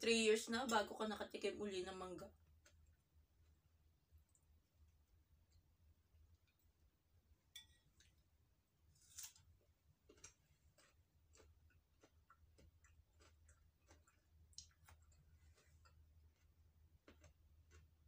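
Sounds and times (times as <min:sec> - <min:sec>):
quiet chewing: 0:02.3 - 0:05.7, 0:09.0 - 0:18.0.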